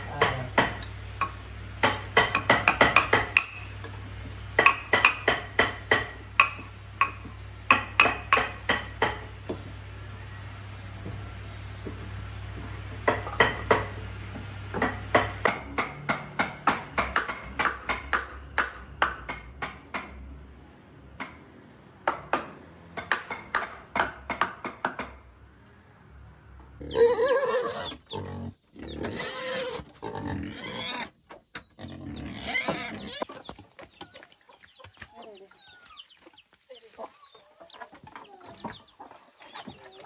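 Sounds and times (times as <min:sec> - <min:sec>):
sharp knocks: 0:04.6 - 0:09.6
animal cries: 0:26.8 - 0:31.1.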